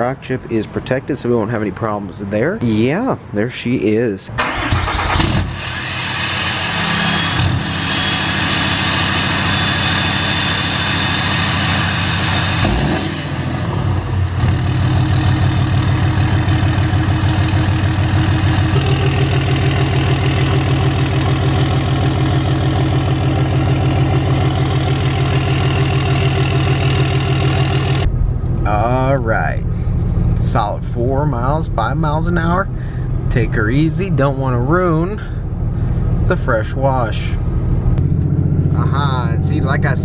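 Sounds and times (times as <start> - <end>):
diesel engine idling: 14.1 - 36.3.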